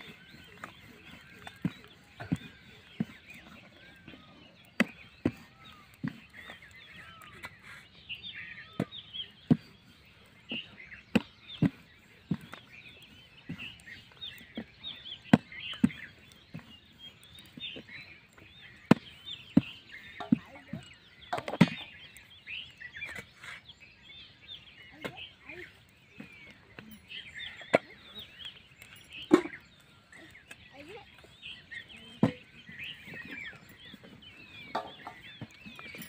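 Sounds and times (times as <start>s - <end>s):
birds chirping: 0.0s - 36.0s.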